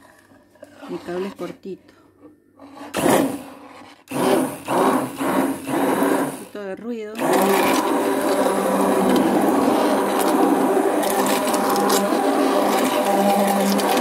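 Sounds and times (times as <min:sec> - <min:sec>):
blade churning liquid soap: 0:00.0 - 0:01.7, 0:02.6 - 0:14.0
hand blender motor hum: 0:02.8 - 0:06.6, 0:07.2 - 0:14.0.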